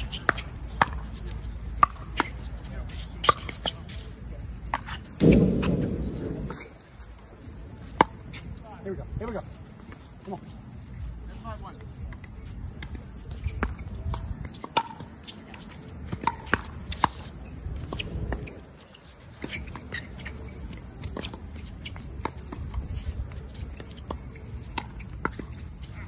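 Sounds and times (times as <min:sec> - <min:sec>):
low rumble: 0:05.2 - 0:06.7.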